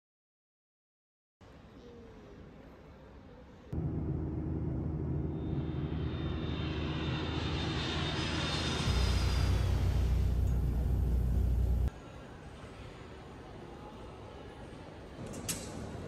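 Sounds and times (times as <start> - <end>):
jet engines humming in cabin: 3.8 - 11.9.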